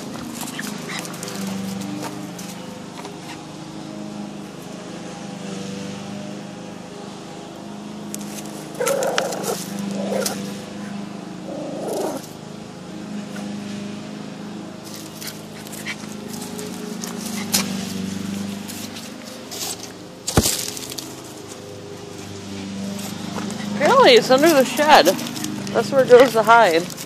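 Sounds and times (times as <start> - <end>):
dog scratching on gravel: 0.0 - 3.4, 8.2 - 10.6, 14.8 - 27.0
small dog whining and yelping: 8.8 - 10.4.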